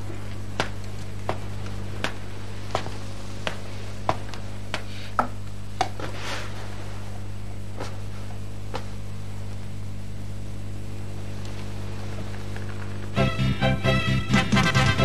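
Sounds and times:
low electrical hum: 0.0 - 15.0
footsteps on wooden floor: 0.1 - 5.0.

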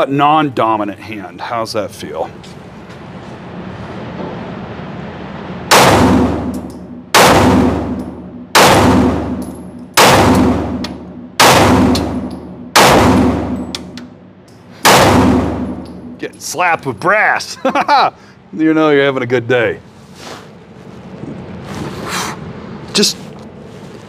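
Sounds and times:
pistol shots echoing indoors: 5.7 - 14.0, 14.8 - 16.2.

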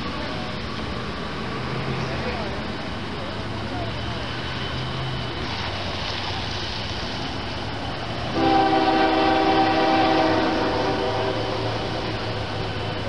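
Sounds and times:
locomotive air horn: 8.3 - 13.0.

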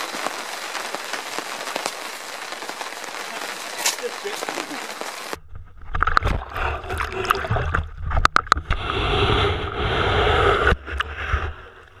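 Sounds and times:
rushing wash of water: 0.0 - 5.4
water splashing and sloshing: 0.0 - 9.0.

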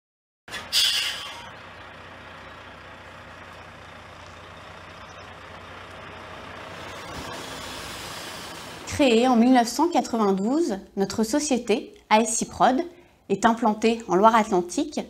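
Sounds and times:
air brake hiss: 0.5 - 1.5
truck engine low rumble: 0.5 - 11.3.

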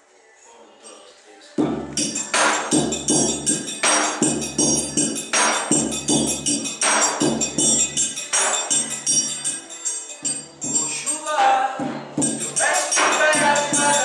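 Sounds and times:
bass drum thumps: 1.6 - 6.6, 11.8 - 12.6
triangle ringing: 1.9 - 14.0.

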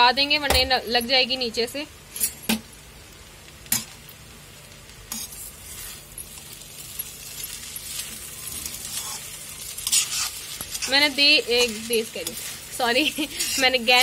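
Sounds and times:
faint sizzle: 0.0 - 14.0
spatula scraping metal pan: 7.9 - 14.0.

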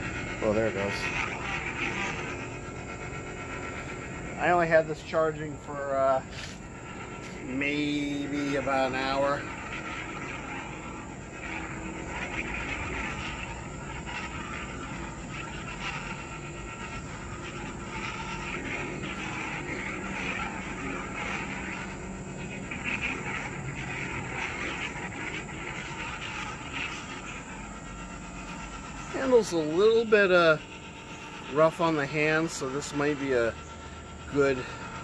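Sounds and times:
lightsaber electric hum: 0.0 - 35.0
lightsaber swing sounds: 8.2 - 27.4.

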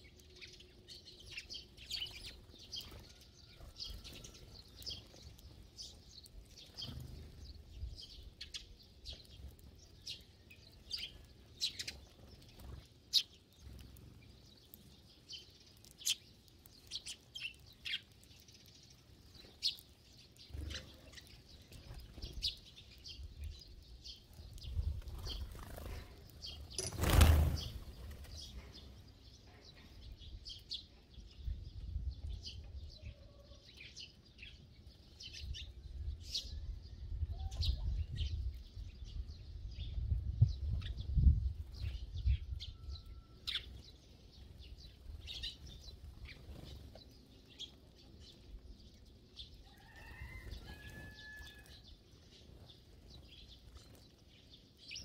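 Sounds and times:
sparrows chirping: 0.0 - 55.0
rush of wings: 25.2 - 27.9.

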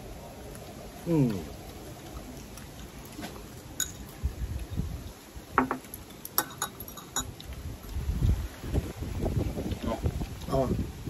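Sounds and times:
utensils clinking on dishes: 5.6 - 7.3.

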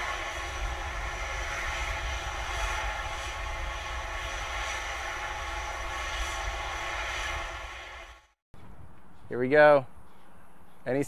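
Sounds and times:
rushing roar of venting gas: 0.0 - 8.4.

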